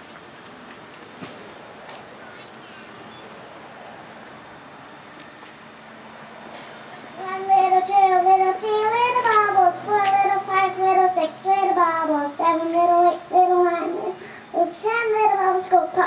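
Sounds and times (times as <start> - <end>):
girl singing through loudspeaker: 7.0 - 16.0.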